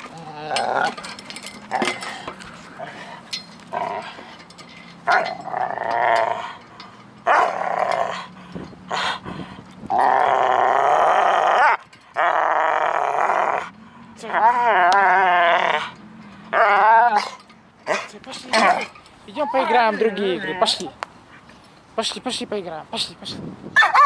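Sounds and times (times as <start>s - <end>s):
dog growling: 0.0s - 1.1s, 3.7s - 4.2s, 9.9s - 13.7s.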